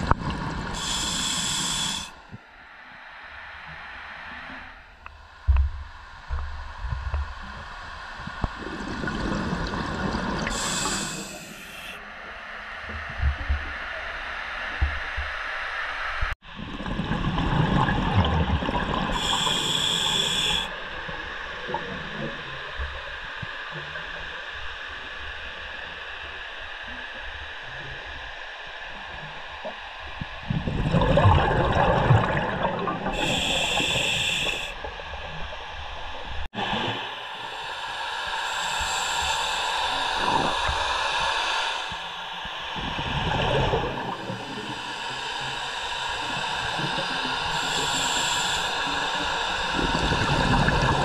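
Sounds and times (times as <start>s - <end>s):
regulator inhale hiss: 0.5s - 2.5s, 9.7s - 12.1s, 19.1s - 21.5s, 32.7s - 35.6s, 36.6s - 51.0s
exhaled bubbles underwater: 8.2s - 11.4s, 16.4s - 20.6s, 30.4s - 35.5s, 42.8s - 44.8s, 46.2s - 51.0s.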